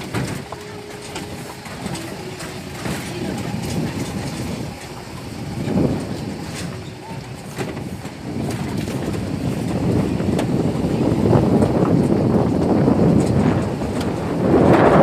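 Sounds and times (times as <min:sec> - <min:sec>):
vehicle rumbling on dirt road: 0:00.0 - 0:15.0
wind buffeting microphone: 0:00.0 - 0:15.0.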